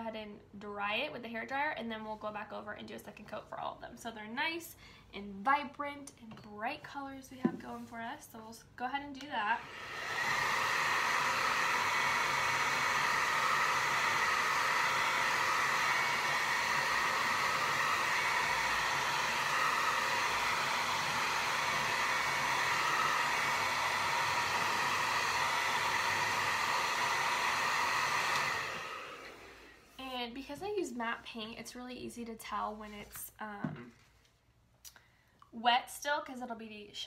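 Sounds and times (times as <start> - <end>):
hair dryer running: 9.4 - 30.0.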